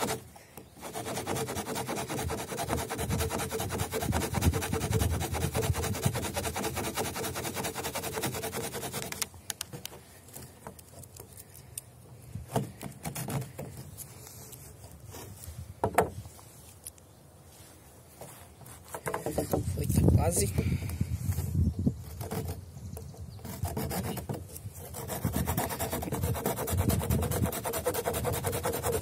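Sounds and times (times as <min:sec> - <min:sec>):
saw cutting wooden branch: 0:00.0 - 0:11.6, 0:12.4 - 0:14.2, 0:22.0 - 0:29.0.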